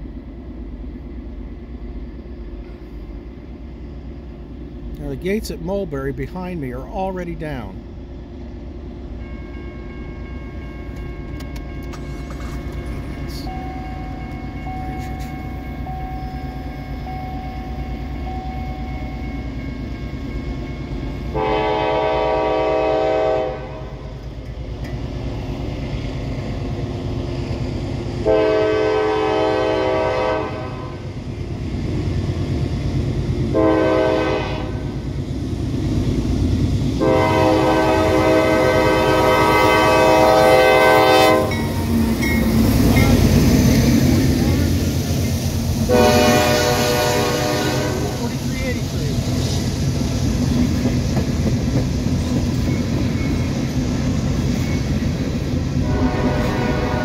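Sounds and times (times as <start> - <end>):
train rumbling: 0.0 - 57.0
locomotive air horn blasts: 21.3 - 24.0, 28.2 - 31.0, 33.5 - 34.9, 37.0 - 41.8, 45.9 - 48.3, 55.8 - 57.0.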